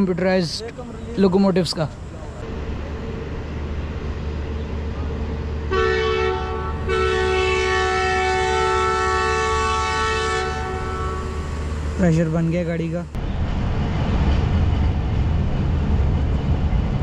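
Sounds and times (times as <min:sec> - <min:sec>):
train low rumble: 0:00.0 - 0:17.0
locomotive air horn: 0:05.7 - 0:11.7.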